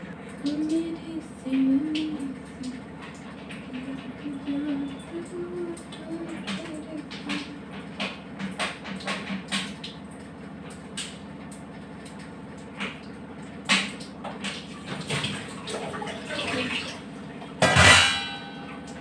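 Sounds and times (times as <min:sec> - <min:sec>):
steady low hum: 0:00.0 - 0:08.7
pots and lids clinking: 0:17.6 - 0:19.0.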